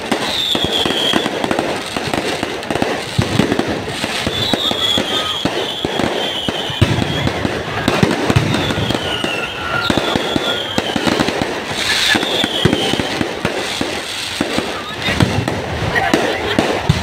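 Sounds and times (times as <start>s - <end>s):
firework whistles: 0.0s - 17.0s
fireworks bangs and crackles: 0.0s - 17.0s.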